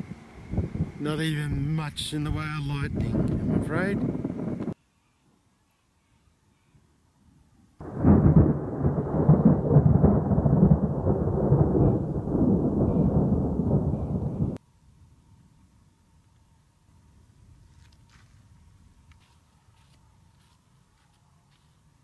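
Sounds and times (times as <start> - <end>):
thunder rumbling: 7.8 - 14.6.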